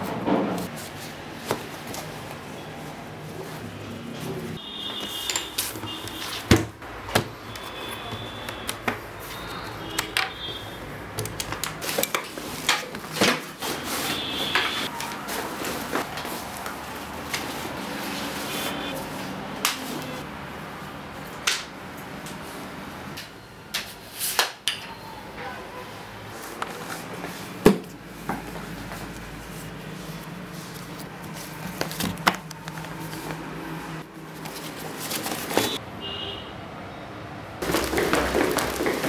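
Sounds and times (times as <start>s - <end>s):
fabric and bag rustling: 37.6s - 39.0s.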